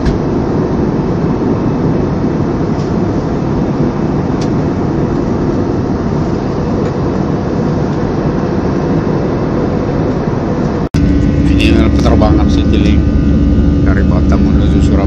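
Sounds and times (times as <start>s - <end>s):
jet airliner cabin rumble: 0.0s - 15.0s.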